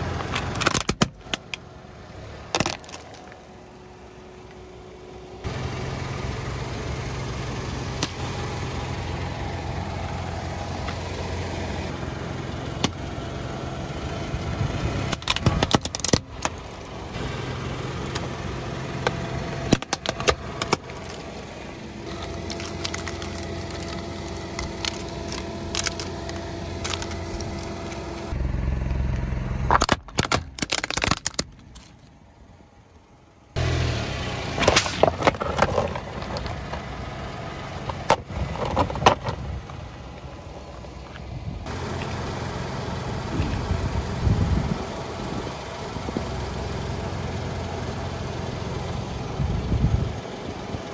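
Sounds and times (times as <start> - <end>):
car engine running: 0.0 - 50.9
plastic cracking and snapping: 19.7 - 21.2, 22.2 - 27.7, 29.7 - 31.9.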